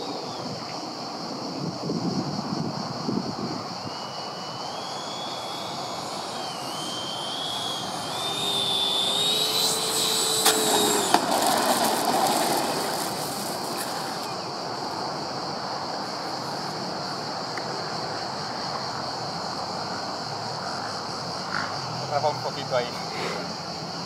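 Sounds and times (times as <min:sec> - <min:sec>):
model jet fan whine: 0:00.0 - 0:24.0
wheels rolling on dirt: 0:04.7 - 0:15.1.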